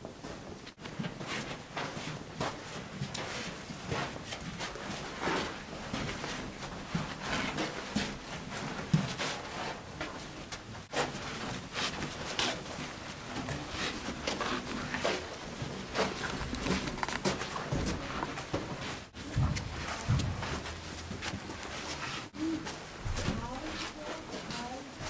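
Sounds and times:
footsteps and scuffs: 0.2s - 25.0s.

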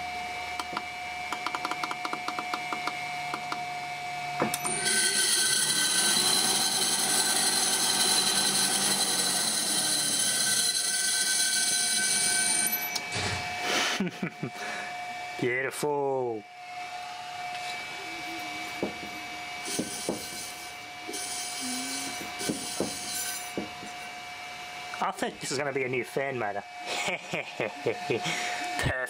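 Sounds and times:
electric motor whining: 0.6s - 13.6s, 16.7s - 24.2s
loud machine tones over hiss: 4.5s - 15.2s, 16.8s - 23.6s.

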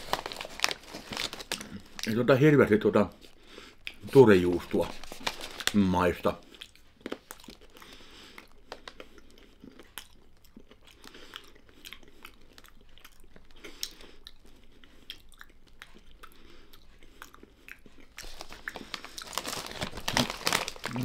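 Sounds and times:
crackers being chewed: 0.0s - 2.2s, 3.2s - 4.1s, 6.4s - 21.0s.

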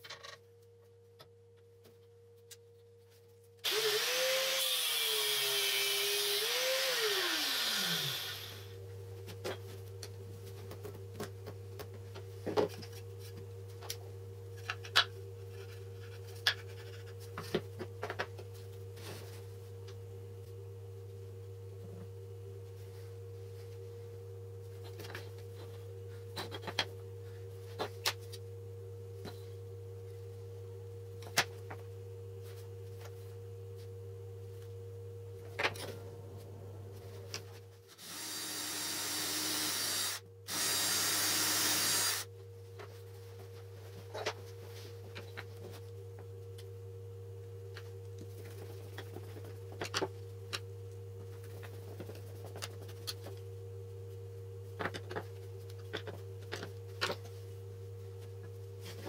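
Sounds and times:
cordless drill boring into wood: 3.6s - 8.6s, 38.0s - 42.2s
steady low hum: 4.9s - 59.0s.

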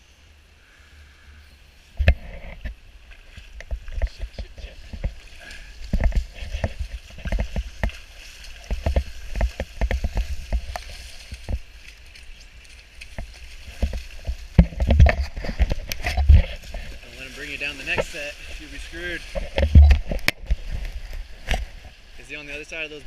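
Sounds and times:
water sloshing and splashing: 1.8s - 22.1s
camera jostling thumps: 5.9s - 11.7s, 13.1s - 16.9s, 19.3s - 21.7s.

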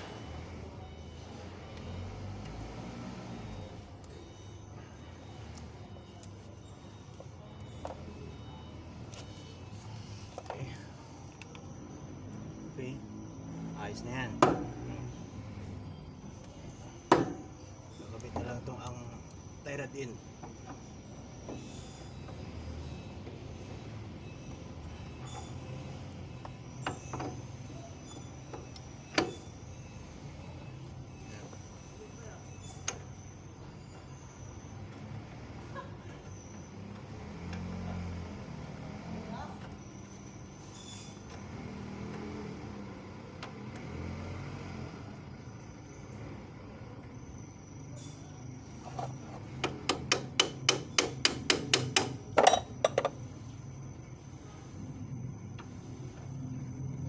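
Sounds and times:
hammer tapping on metal: 49.7s - 53.1s
sharp metal knock: 49.9s - 53.0s.

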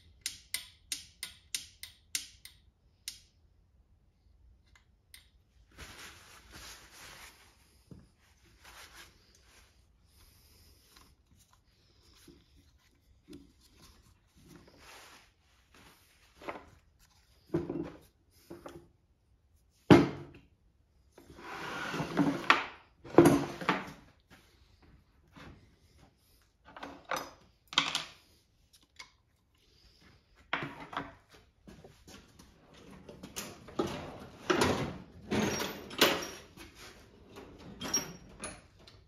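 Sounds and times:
drawer sliding: 21.3s - 24.0s, 32.6s - 38.8s
metal tools clattering: 33.2s - 39.0s.

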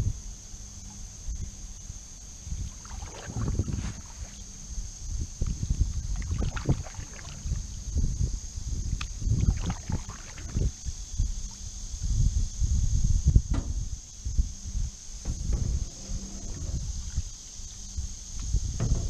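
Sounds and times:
canoe paddles splashing in water: 2.7s - 4.4s, 6.0s - 7.6s, 9.4s - 10.8s.

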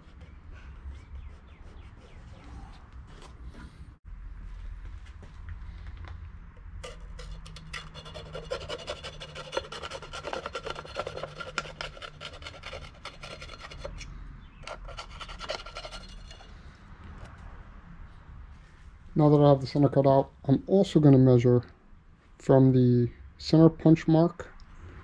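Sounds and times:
knife scratching through paper: 6.8s - 14.0s, 14.6s - 16.5s.

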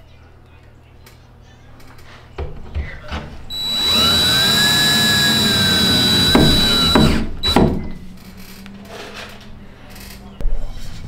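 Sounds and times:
power drill driving a screw: 3.5s - 7.8s.

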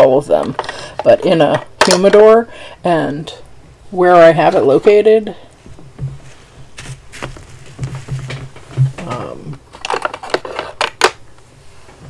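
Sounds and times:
pens clicking and rattling: 0.4s - 2.2s, 9.7s - 11.2s.

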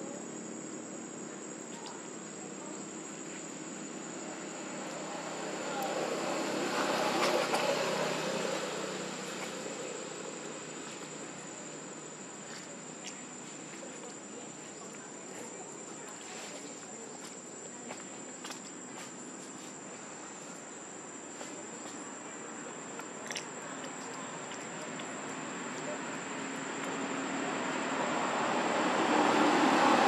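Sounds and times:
vehicle passing: 4.3s - 11.6s, 24.3s - 30.0s.

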